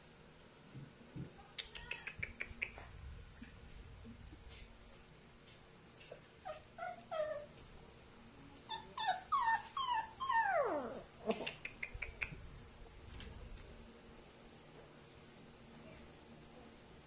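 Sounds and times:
dog whining: 6.4s - 7.5s, 8.4s - 11.6s.

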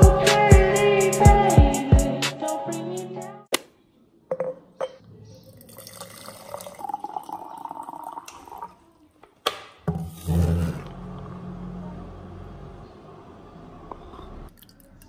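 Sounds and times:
water pouring into glass jar: 5.6s - 8.8s.

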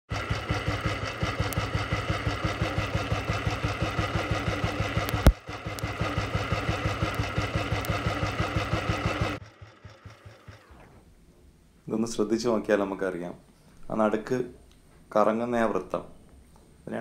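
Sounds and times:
motorcycle engine idling: 0.1s - 10.7s.

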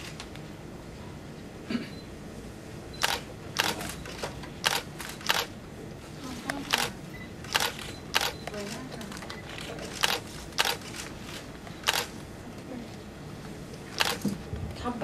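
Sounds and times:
camera shutters clicking: 3.0s - 5.5s, 6.6s - 12.2s, 14.0s - 14.3s.

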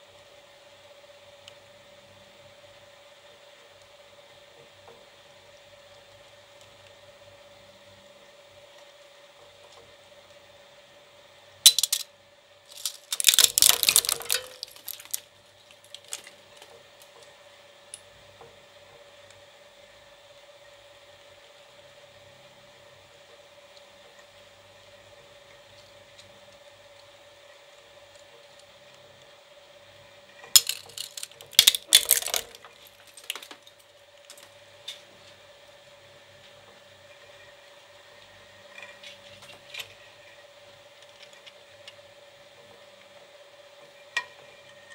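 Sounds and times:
shredder cracking metal: 11.7s - 12.1s, 12.7s - 16.7s, 30.4s - 34.5s
toy car clanking onto blades: 11.7s - 12.1s, 12.7s - 16.4s, 30.4s - 34.4s.

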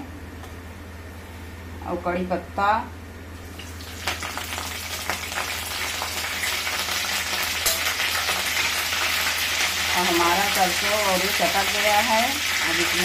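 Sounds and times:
leaves sizzling in hot oil: 3.5s - 13.0s.

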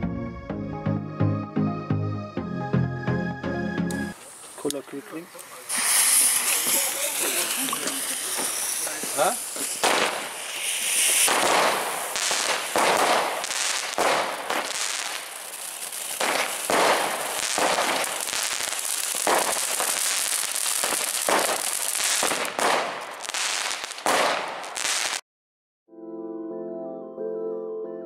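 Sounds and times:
crackling pops: 4.2s - 25.2s
hiss of spraying sparks: 5.4s - 22.5s.

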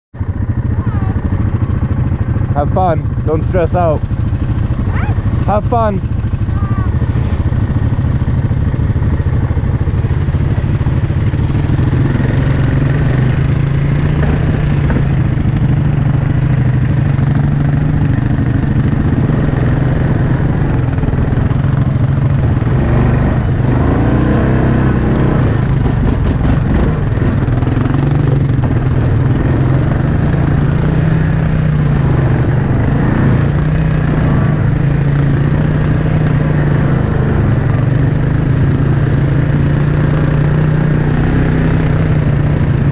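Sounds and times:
quad bike engine running: 0.2s - 42.9s.

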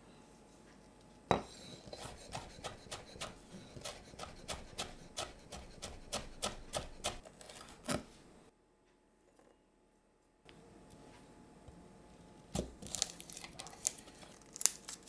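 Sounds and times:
knife chopping on wooden board: 1.3s - 7.2s.

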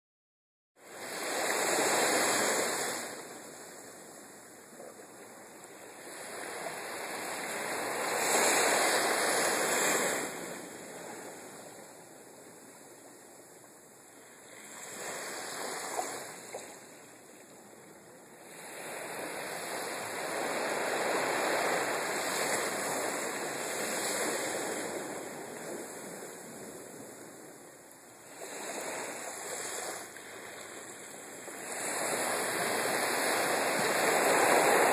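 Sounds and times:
sea waves on a beach: 0.8s - 34.9s.

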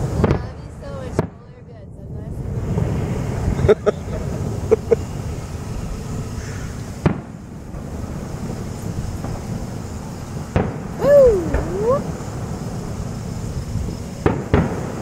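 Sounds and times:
fireworks bangs and pops: 0.0s - 1.5s, 7.0s - 15.0s
wind rumble on microphone: 0.0s - 15.0s.

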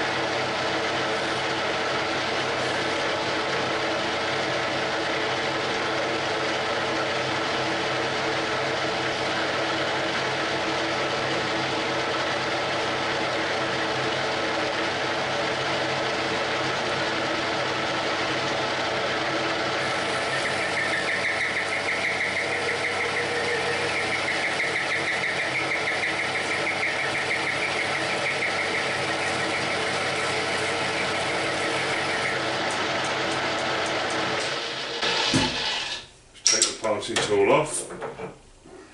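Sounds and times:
metal lathe humming: 0.0s - 36.1s
tool scraping workpiece: 29.2s - 36.7s.

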